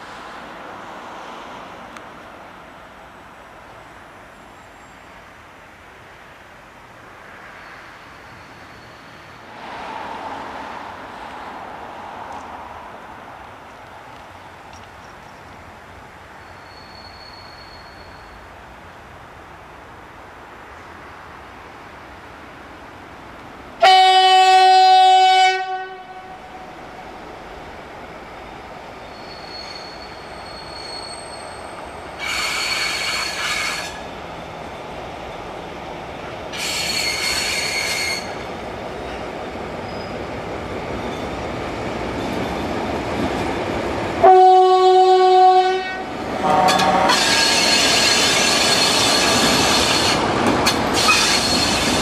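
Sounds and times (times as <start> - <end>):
wheel squeal: 16.5 - 18.4, 29.0 - 34.0, 36.6 - 38.4, 39.8 - 40.3, 46.7 - 52.0
locomotive horn blast: 23.8 - 26.5, 44.2 - 48.3.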